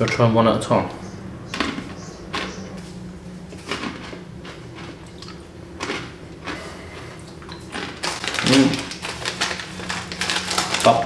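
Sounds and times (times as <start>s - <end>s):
low hum: 0.0s - 10.8s
sweets clicking and rustling: 7.3s - 11.0s.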